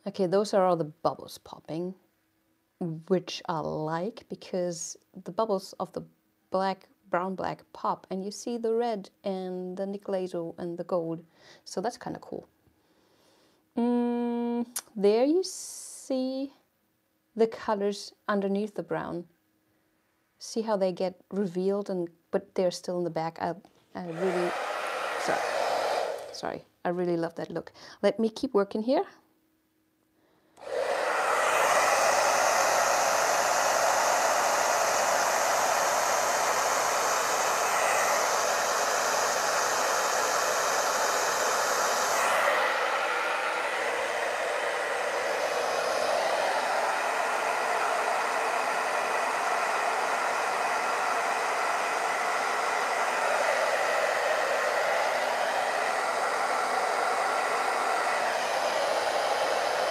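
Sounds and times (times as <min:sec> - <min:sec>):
hairdryer running: 0:24.0 - 0:26.6, 0:30.6 - 0:59.9.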